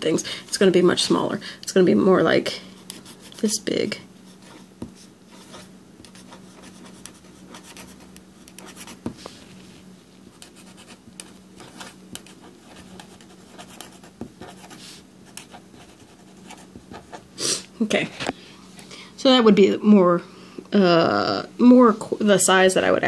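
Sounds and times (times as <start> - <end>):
low steady hum: 0.0 - 23.0
marker scratching on paper: 2.8 - 3.6, 4.3 - 9.4, 10.4 - 17.2.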